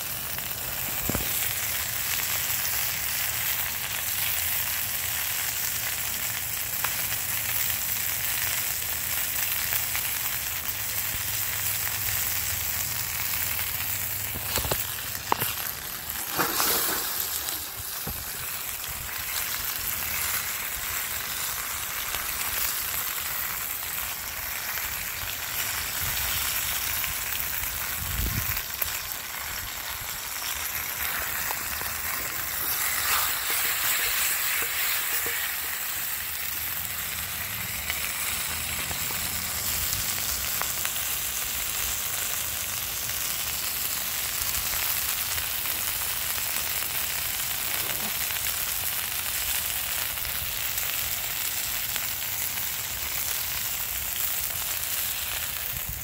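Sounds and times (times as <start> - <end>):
chicken sizzling in oil: 0.0 - 56.0
oil popping: 0.1 - 3.0, 11.5 - 41.3.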